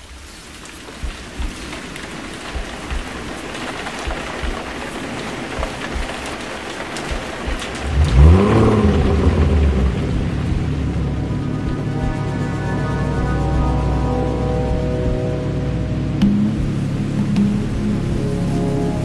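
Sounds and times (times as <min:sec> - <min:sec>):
rain hissing: 0:00.0 - 0:19.0
deep rising swell and drone: 0:07.8 - 0:19.0.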